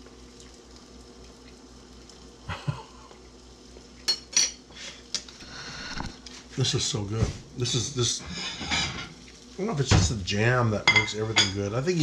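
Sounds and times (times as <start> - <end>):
faint hum: 0.0 - 12.0.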